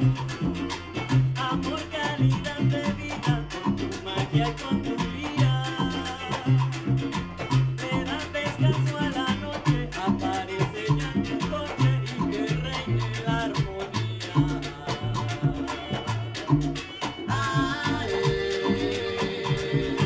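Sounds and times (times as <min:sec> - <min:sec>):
bass line: 0:00.0 - 0:20.0
congas and timbales: 0:00.0 - 0:20.0
latin band playing: 0:00.0 - 0:20.0
strummed cuatro: 0:00.0 - 0:20.0
woman singing: 0:13.5 - 0:16.4, 0:17.3 - 0:20.0.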